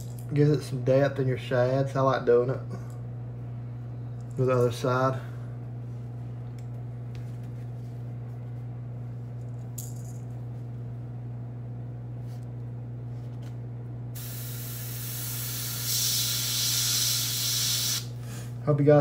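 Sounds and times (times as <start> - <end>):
compressor humming: 0.0 - 19.0
airbrush hissing: 14.2 - 18.1.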